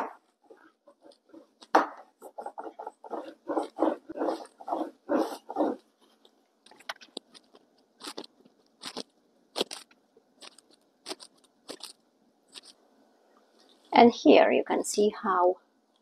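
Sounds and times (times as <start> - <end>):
cookie cutter scraping: 0.0 - 5.8
rolling pin rolling dough: 0.0 - 8.2.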